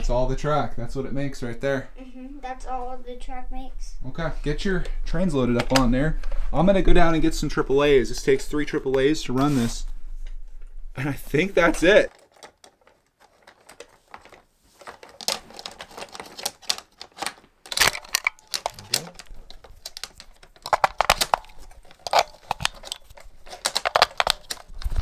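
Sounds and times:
plastic toy train parts clicking: 12.1s - 25.0s.

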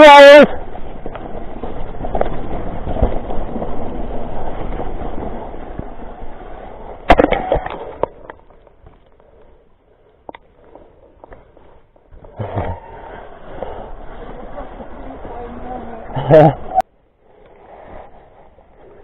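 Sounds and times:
mountain bike rolling over trail: 0.0s - 19.0s.

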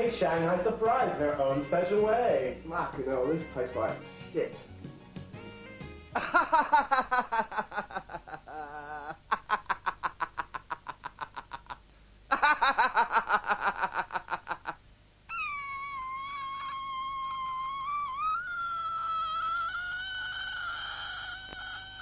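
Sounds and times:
man laughing hysterically: 6.2s - 22.0s.

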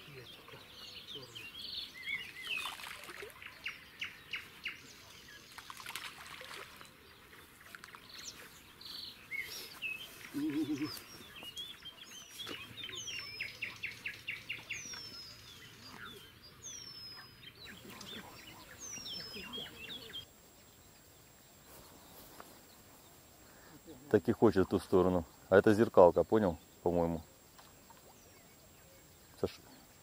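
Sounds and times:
birds chirping trills: 0.0s - 30.0s
short low bird call: 10.3s - 11.1s.

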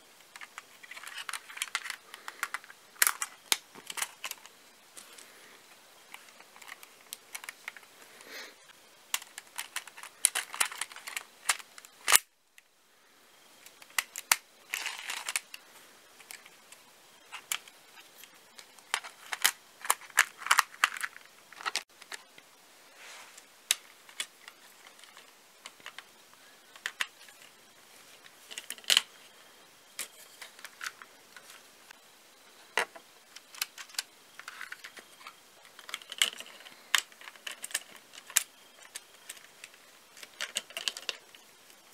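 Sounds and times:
plastic clicks and rattles: 0.2s - 5.2s, 9.1s - 12.3s, 13.6s - 15.6s, 18.5s - 22.4s, 23.7s - 26.1s, 26.7s - 27.5s, 28.3s - 29.1s, 32.8s - 41.5s.

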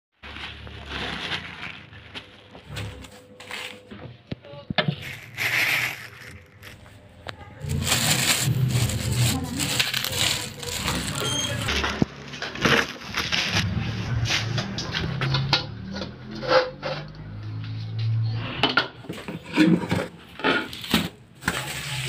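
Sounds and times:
plastic packaging rustling: 0.2s - 3.9s, 4.8s - 14.2s.

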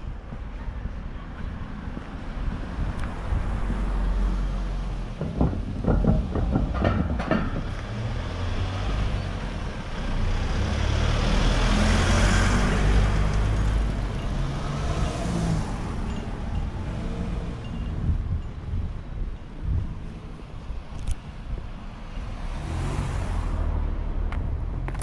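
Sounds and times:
truck passing: 3.2s - 18.2s
sharp clicks or knocks: 5.2s - 8.0s.

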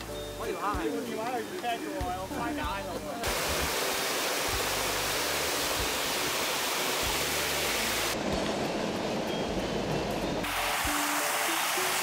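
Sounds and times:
small waterfall rushing: 3.2s - 8.3s, 10.4s - 12.0s.

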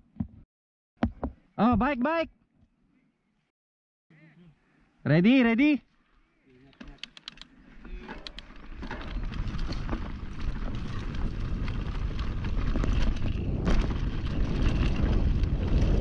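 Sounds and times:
mountain bike rumbling on dirt: 7.6s - 16.0s
wind buffeting microphone: 7.8s - 16.0s.

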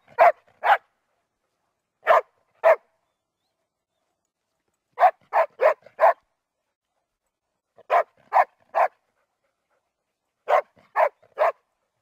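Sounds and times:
dog barking: 0.1s - 0.9s, 2.0s - 2.9s, 5.0s - 6.2s, 7.8s - 9.0s, 10.4s - 11.6s.

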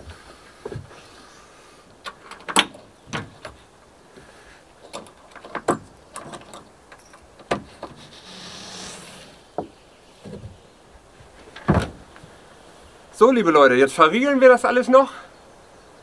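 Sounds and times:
sliding rub: 7.8s - 9.6s
loud thump: 11.6s - 12.0s.

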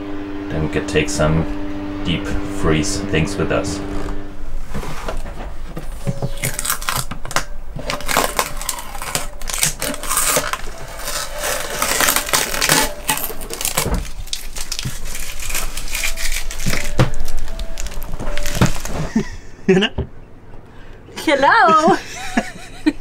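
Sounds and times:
plastic film peeled off crinkling: 6.3s - 19.1s.

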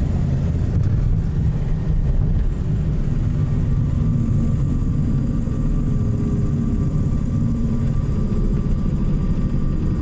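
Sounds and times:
aircraft engines low rumble: 0.0s - 10.0s
faint steady tones: 0.0s - 10.0s.

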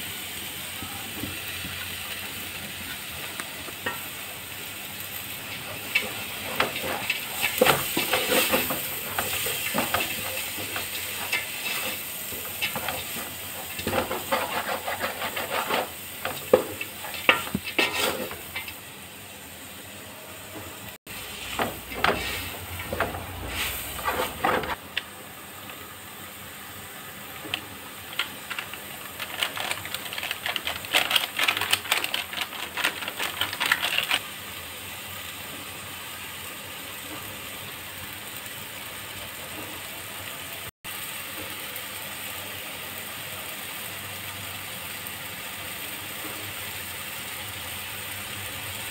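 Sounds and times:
vegetables sizzling in pot: 0.0s - 48.9s
wooden spatula scraping pot: 5.5s - 18.7s, 21.4s - 24.8s.

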